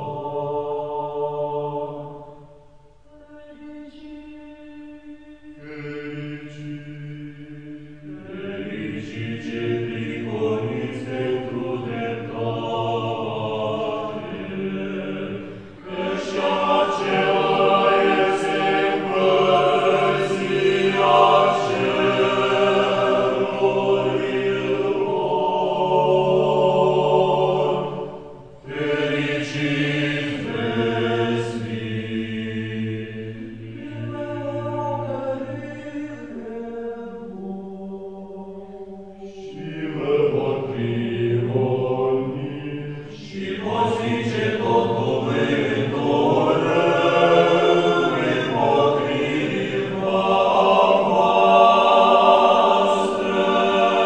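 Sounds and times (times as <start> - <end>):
group of voices chanting: 8.1 - 34.2, 39.4 - 54.0.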